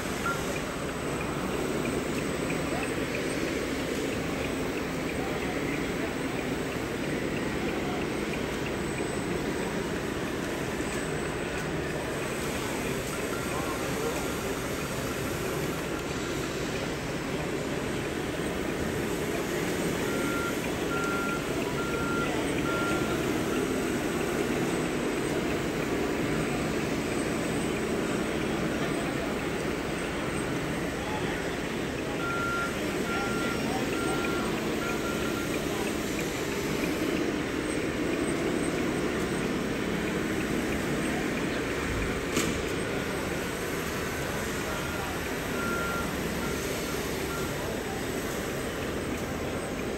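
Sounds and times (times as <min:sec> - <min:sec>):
hall background noise: 0:00.0 - 0:49.9
high-pitched reversing beeps: 0:00.0 - 0:49.9
model machines mechanical running: 0:00.0 - 0:49.9.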